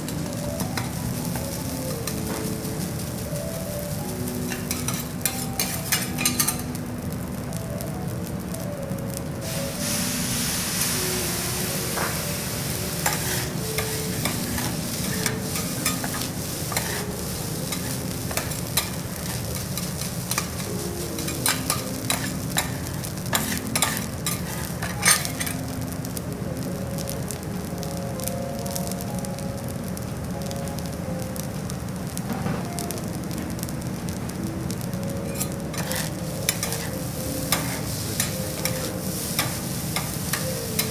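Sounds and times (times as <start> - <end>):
rice sizzling on a griddle: 0.0 - 40.9
spatulas scraping and tapping metal: 4.5 - 6.7, 13.0 - 25.6, 35.2 - 40.9.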